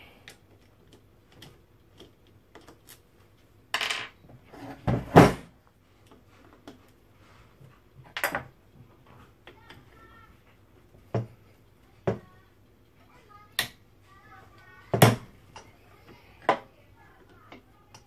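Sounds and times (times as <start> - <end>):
scrape on wooden workbench: 4.5 - 5.2.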